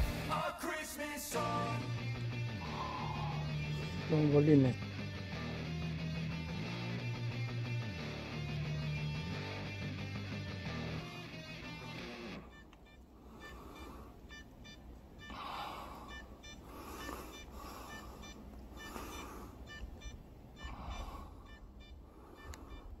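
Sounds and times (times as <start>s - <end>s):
background music: 0.0s - 12.4s
short high beeps: 12.4s - 15.4s, 16.1s - 23.0s.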